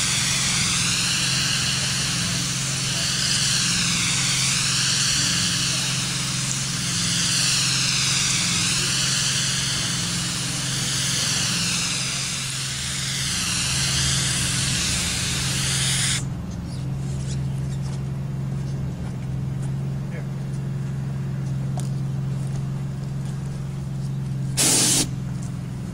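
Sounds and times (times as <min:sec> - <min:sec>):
spray gun hissing: 0:00.0 - 0:16.3, 0:24.6 - 0:25.2
low machine drone: 0:00.0 - 0:25.9.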